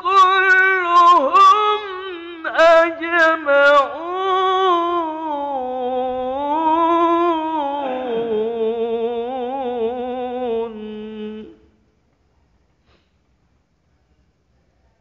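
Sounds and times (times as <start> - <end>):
man chanting melodically: 0.0 - 11.6.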